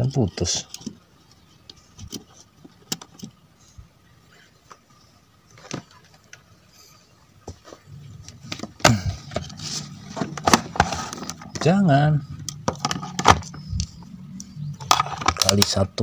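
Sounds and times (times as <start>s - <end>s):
low hum: 7.8s - 15.4s.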